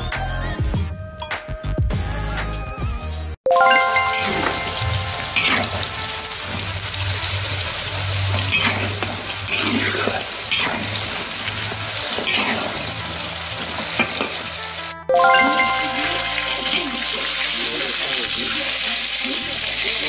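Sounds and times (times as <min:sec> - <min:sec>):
intro music: 0:03.5 - 0:07.2, 0:14.6 - 0:18.2
hot oil sizzling: 0:03.8 - 0:20.0.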